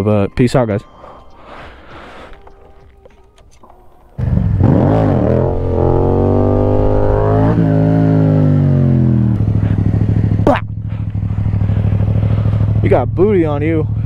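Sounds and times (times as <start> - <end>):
motorcycle engine accelerating: 4.1 - 14.0.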